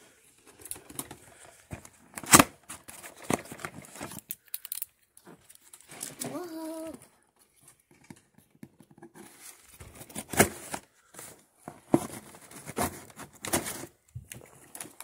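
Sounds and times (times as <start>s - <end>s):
packaging rustling and crinkling: 0.4s - 6.6s, 9.2s - 15.0s.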